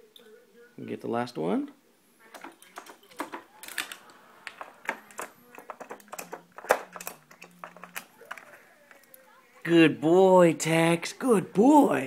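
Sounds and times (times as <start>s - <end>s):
plastic drawers clicking and clattering: 2.4s - 8.5s.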